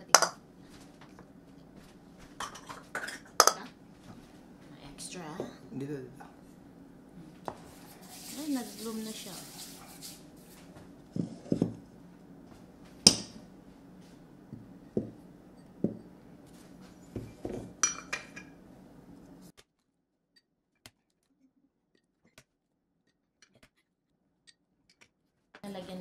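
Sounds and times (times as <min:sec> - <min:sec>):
eggs and bowls set on counter: 0:00.1 - 0:00.4, 0:02.4 - 0:03.7, 0:07.4 - 0:11.9, 0:14.5 - 0:18.6
glass clinks: 0:17.1 - 0:18.5.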